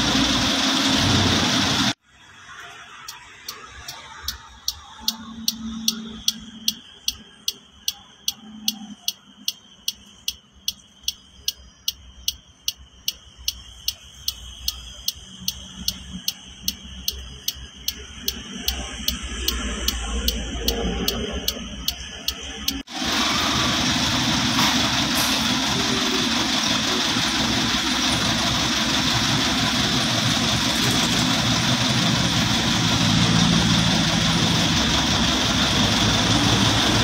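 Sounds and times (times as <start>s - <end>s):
faint engine running: 0.0s - 2.0s, 13.5s - 37.0s
metallic engine ticking: 3.0s - 37.0s.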